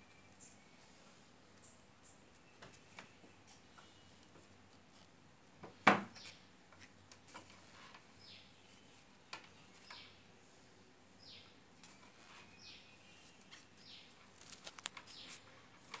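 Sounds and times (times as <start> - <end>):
bird chirping faintly: 0.0 - 4.6, 7.7 - 16.0.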